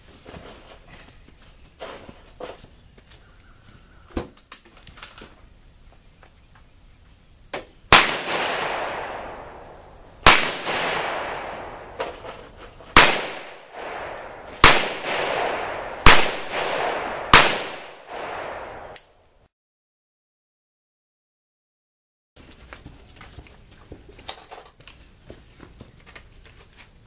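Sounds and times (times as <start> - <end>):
revolver gunshots with echo: 7.9 - 12.0, 13.0 - 19.0.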